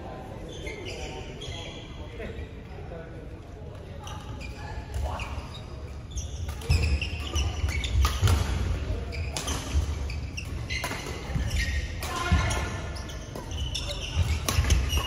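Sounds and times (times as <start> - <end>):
sneakers squeaking: 0.5 - 2.0, 4.0 - 15.0
racket hitting shuttlecock: 6.5 - 13.5, 14.1 - 15.0.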